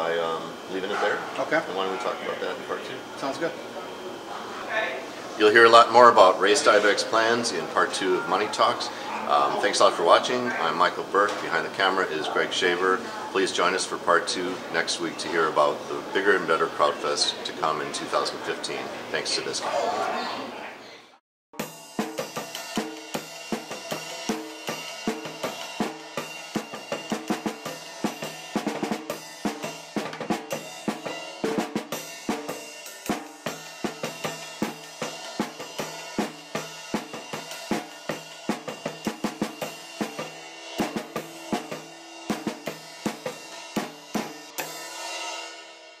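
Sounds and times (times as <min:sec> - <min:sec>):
drum-kit beat: 0:21.6 - 0:45.9
instrumental theme music: 0:21.6 - 0:46.0.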